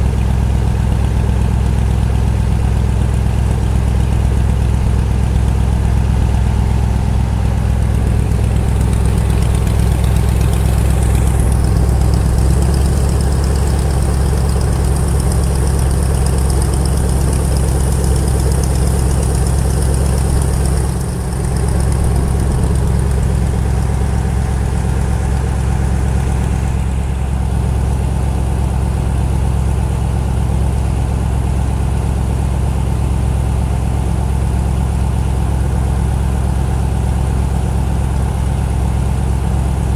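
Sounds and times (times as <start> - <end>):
boat engine running: 1.8 - 29.6.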